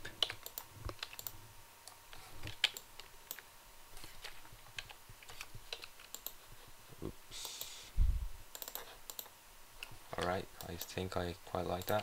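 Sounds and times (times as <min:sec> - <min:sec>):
keyboard and mouse clicks: 0:00.0 - 0:03.4, 0:04.0 - 0:06.4, 0:08.5 - 0:11.0, 0:11.7 - 0:12.0.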